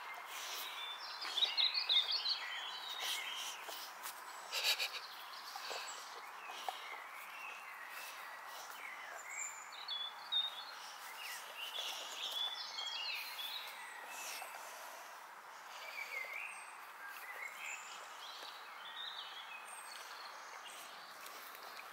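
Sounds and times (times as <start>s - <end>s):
outdoor ambience: 0.0s - 21.9s
songbirds chirping: 0.0s - 21.9s.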